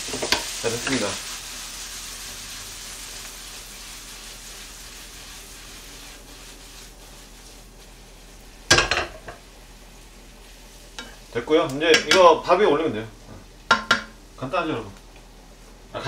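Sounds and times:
wok clanging on burner grate: 0.0 - 1.1, 8.7 - 9.4, 11.9 - 12.4, 13.7 - 14.2
noodles sizzling in a wok: 0.0 - 16.0.

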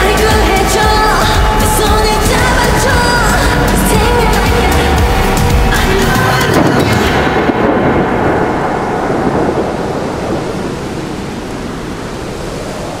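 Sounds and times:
sped-up song: 0.0 - 8.8
steady rain: 0.0 - 13.0
thunder rumbling: 0.0 - 13.0.

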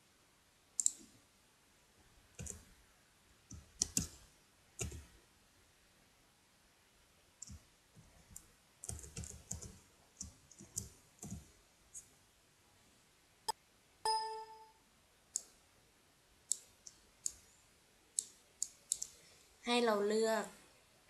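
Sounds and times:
computer keyboard keys clacking: 0.8 - 1.0, 2.4 - 2.6, 3.5 - 4.2, 4.8 - 5.1, 8.3 - 11.5, 18.2 - 19.1
computer alert chime: 14.1 - 14.8.

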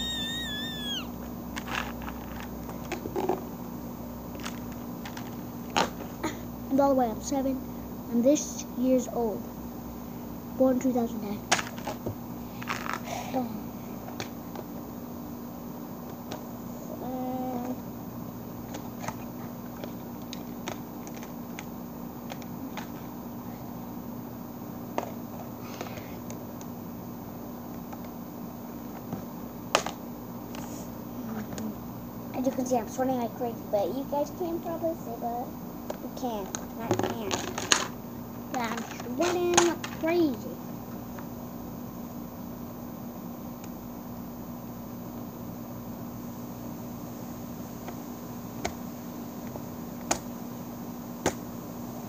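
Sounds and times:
high-pitched squeal: 0.0 - 1.1
steady low hum: 0.0 - 52.0.

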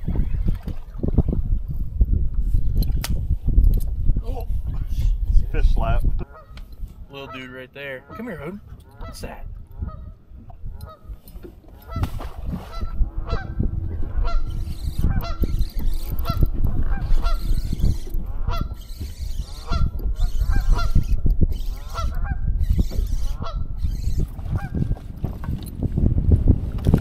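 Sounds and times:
geese honking: 7.2 - 10.1, 12.7 - 21.0
steady low rumble: 11.8 - 22.6.

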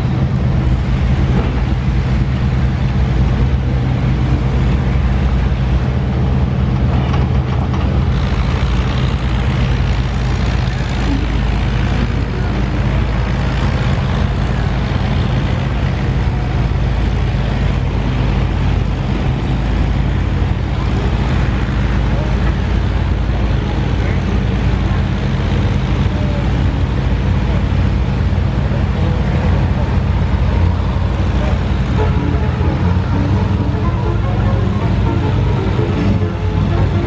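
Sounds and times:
engine droning: 0.0 - 37.0.

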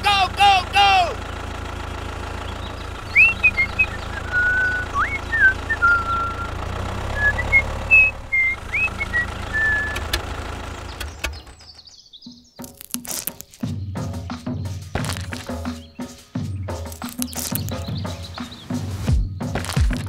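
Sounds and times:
toy tractor engine drone: 0.0 - 11.9
high whistled chirps: 2.6 - 10.2
sharp clicks: 8.7 - 11.9, 12.6 - 13.6, 15.0 - 15.5, 16.9 - 18.0.

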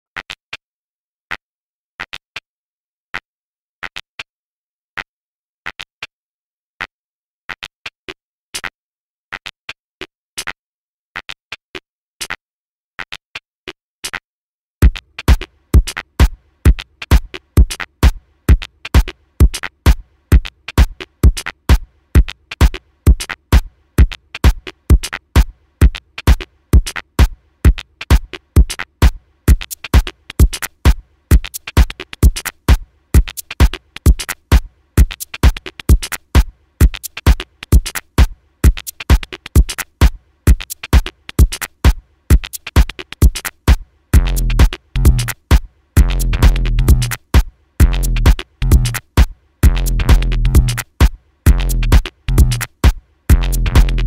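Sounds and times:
hi-hat ticks: 14.8 - 54.0
steady kick drum: 14.8 - 54.0.

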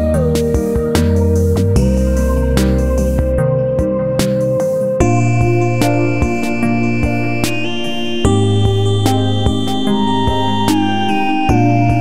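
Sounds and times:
steady beat: 0.5 - 12.0
sustained instrumental tones: 5.0 - 12.0.

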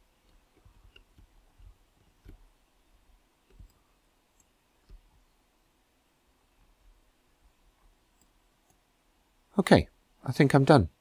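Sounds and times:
computer mouse clicks: 0.2 - 2.5, 3.4 - 5.2, 8.1 - 8.8.

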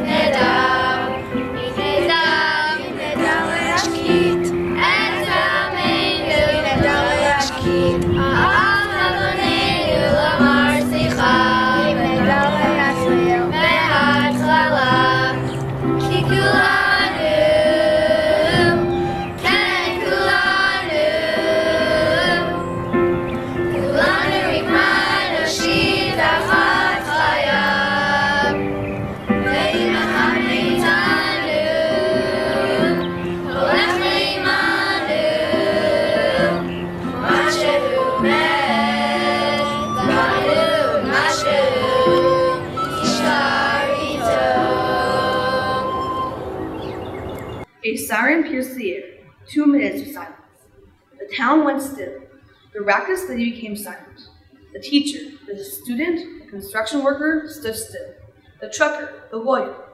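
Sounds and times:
held instrumental notes: 0.0 - 47.7
young voices singing together: 0.0 - 47.7.

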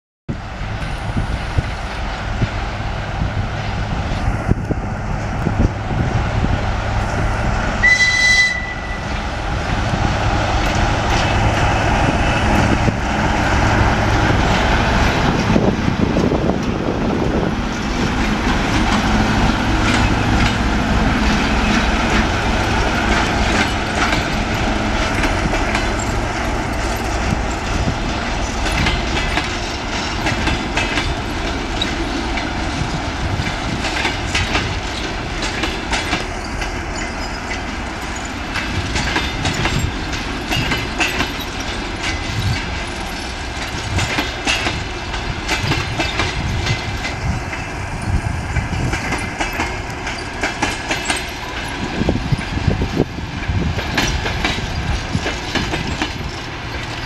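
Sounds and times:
diesel locomotive engine hum: 0.3 - 57.0
train wheels clacking on rails: 0.7 - 57.0
short high-pitched signal: 7.8 - 9.1.

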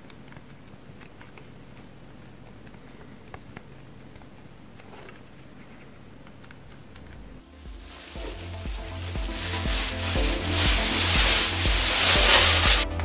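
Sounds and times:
low steady hum: 3.9 - 13.0.

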